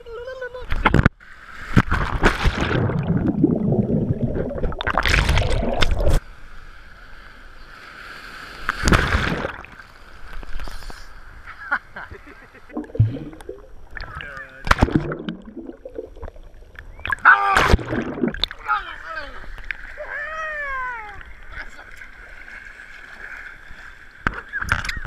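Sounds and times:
water sloshing and gurgling: 0.8 - 6.3, 8.2 - 11.4, 12.7 - 25.0
water splash: 1.6 - 6.2, 8.6 - 10.0, 12.7 - 18.9.

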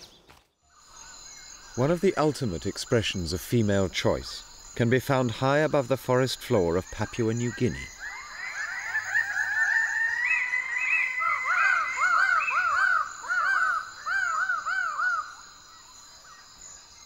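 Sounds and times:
birds calling: 0.0 - 17.0
high insect drone: 0.7 - 17.0.

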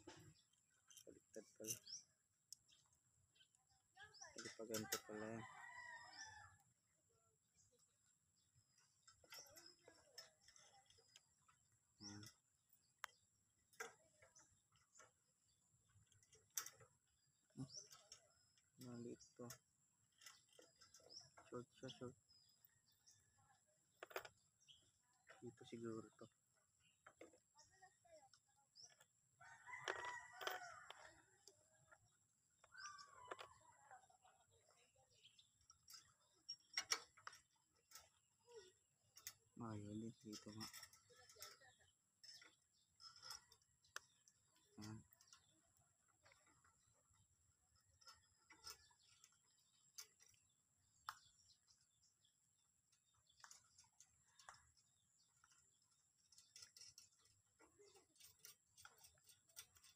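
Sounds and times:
rooster crowing: 29.4 - 31.0.

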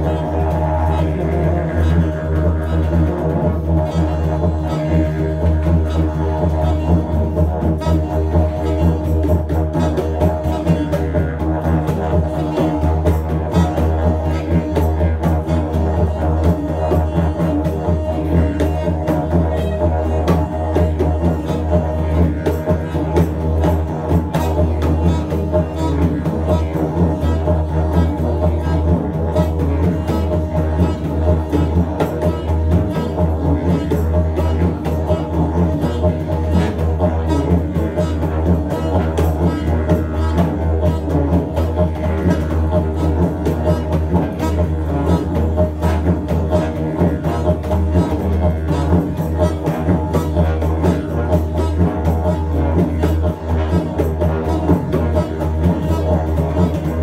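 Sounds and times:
congas: 0.0 - 57.0
saxophone: 0.0 - 57.0
steady low drone: 0.0 - 57.0
tuba: 0.0 - 57.0.

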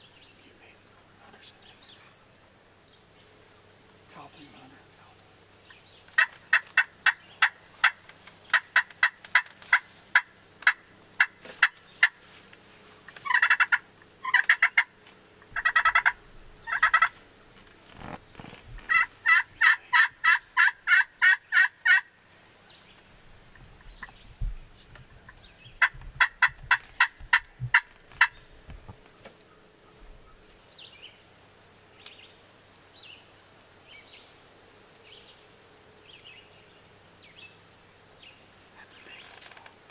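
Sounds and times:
turkey call yelps: 13.2 - 14.9, 15.6 - 17.1, 18.9 - 22.1.

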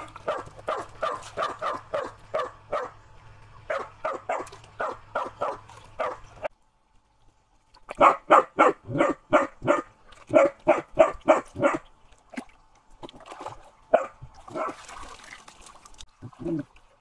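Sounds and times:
dog barking: 0.2 - 3.0, 3.7 - 6.2, 8.0 - 11.8, 13.9 - 14.8.

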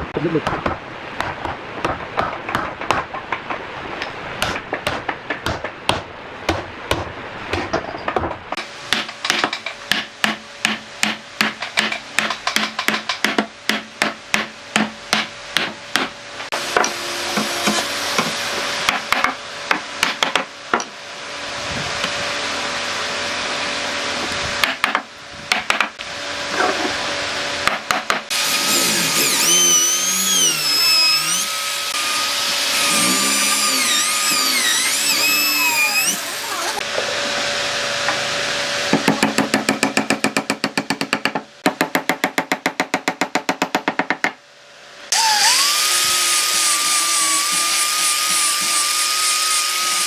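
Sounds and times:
wooden mallet knocking wood: 4.4 - 16.1
power tool running: 28.3 - 39.9, 45.1 - 50.0.

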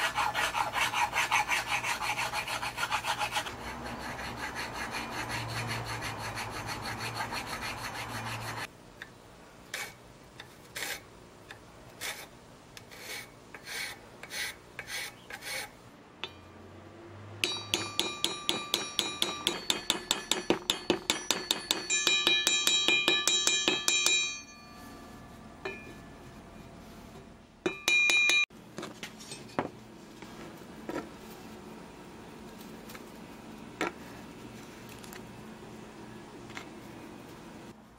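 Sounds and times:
hand file rasping on wood: 0.0 - 8.7
light metallic strikes: 16.2 - 16.8, 17.4 - 26.2.

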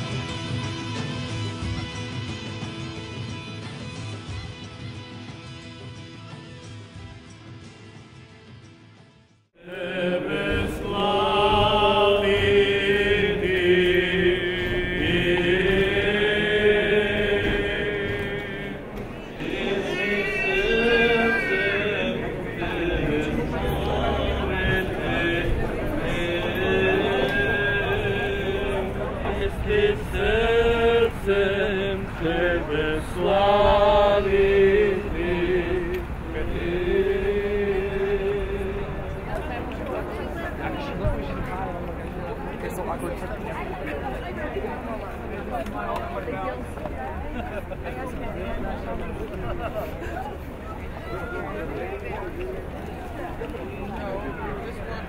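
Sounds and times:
background music: 0.0 - 38.9
church chanting: 9.6 - 40.1.

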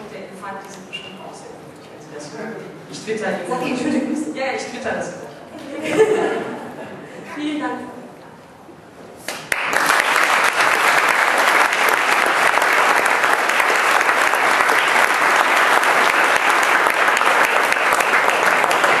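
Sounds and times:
audience applauding: 9.2 - 19.0.

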